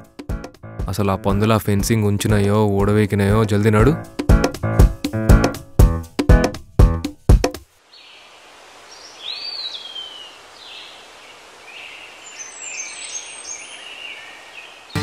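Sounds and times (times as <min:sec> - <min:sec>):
background hiss: 0:06.6 - 0:15.0
birds calling: 0:07.8 - 0:15.0.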